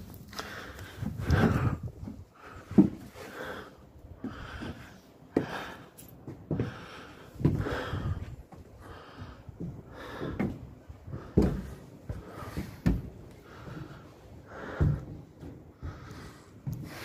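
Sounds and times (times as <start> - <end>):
person breathing heavily through nose: 0.3 - 17.0
knocks and thumps on timber frame: 1.1 - 3.1.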